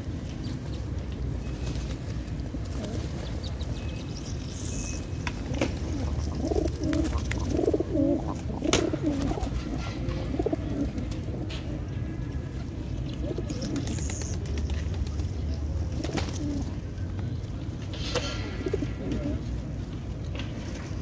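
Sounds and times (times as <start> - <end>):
pigeons cooing: 5.3 - 11.8, 12.6 - 16.9, 18.2 - 19.8.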